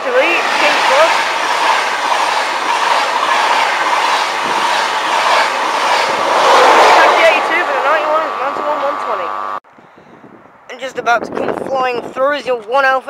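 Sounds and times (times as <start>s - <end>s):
train rushing past: 0.0s - 9.6s
wheels clacking over track: 0.0s - 9.6s.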